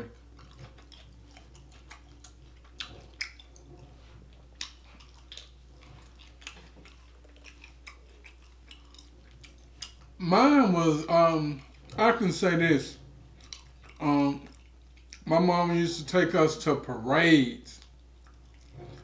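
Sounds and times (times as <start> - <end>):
chewing with wet mouth smacks: 0.0 - 10.2, 11.4 - 12.2, 13.0 - 15.4, 17.8 - 19.0.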